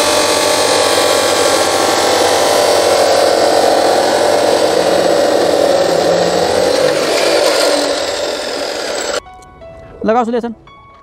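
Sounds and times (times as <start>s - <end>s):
chop saw cutting plastic pipe: 0.0s - 9.2s.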